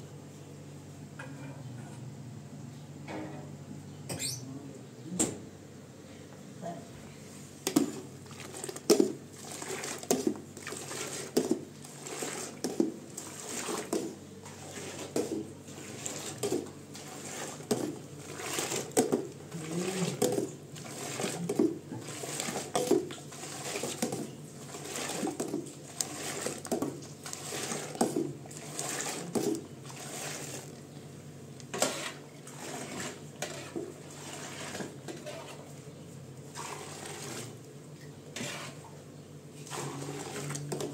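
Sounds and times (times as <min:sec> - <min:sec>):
metal bowl clinking and scraping: 0:07.7 - 0:30.7, 0:31.7 - 0:35.7
milk splashing: 0:07.7 - 0:30.8.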